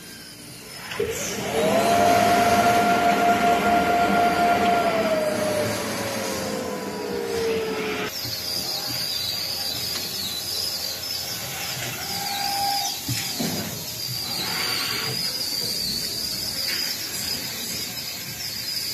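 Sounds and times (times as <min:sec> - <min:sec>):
thin high whine: 0:00.0 - 0:18.1
motor tone sliding down: 0:00.7 - 0:08.3
quilting machinery running: 0:00.8 - 0:08.5.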